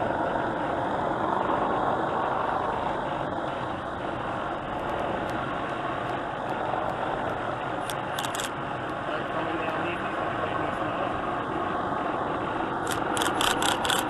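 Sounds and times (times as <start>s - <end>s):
engine drone: 0.0s - 14.0s.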